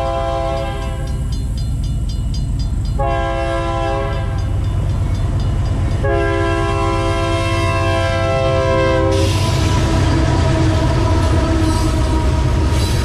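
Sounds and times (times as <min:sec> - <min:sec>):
locomotive air horn blasts: 0:00.0 - 0:01.0, 0:03.0 - 0:04.4, 0:06.0 - 0:13.0
crossing bells ringing rapidly: 0:00.0 - 0:07.1
locomotive engine rumble: 0:00.0 - 0:13.0.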